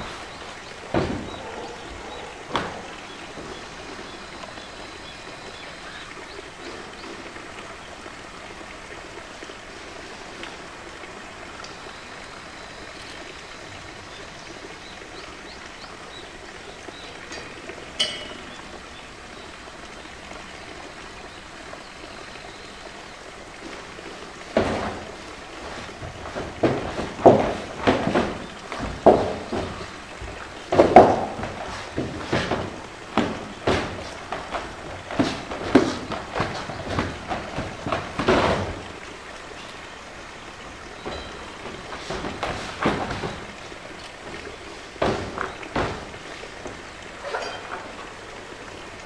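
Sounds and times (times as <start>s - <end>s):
plastic tank knocking on concrete: 30.7s - 34.6s.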